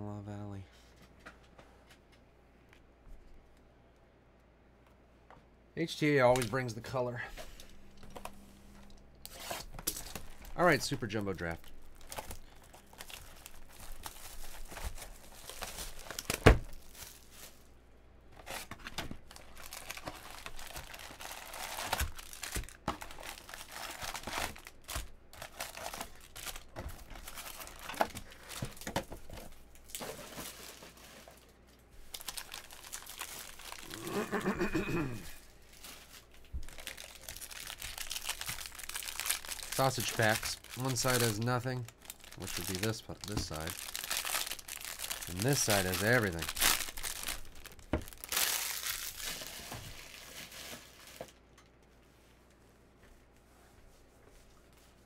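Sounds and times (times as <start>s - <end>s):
shrink wrap crinkling and tearing: 5.9s - 17.7s, 18.4s - 34.3s, 35.2s - 51.6s
foil packs handled: 9.2s - 17.7s, 18.4s - 34.0s, 35.6s - 51.4s.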